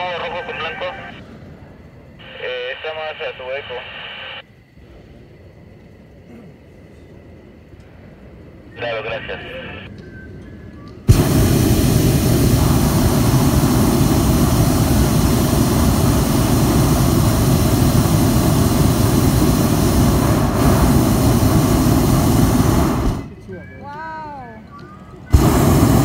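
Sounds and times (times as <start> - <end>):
propane burner blast: 11.1 - 23.4, 25.3 - 26.0.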